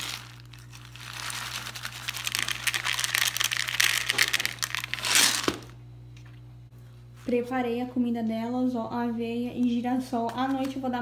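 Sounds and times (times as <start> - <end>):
seeds pouring into plastic tub: 0.0 - 5.6.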